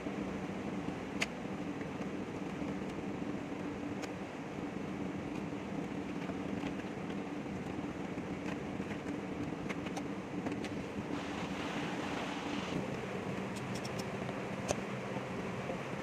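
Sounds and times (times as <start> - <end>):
steady mechanical hum: 0.0 - 16.0.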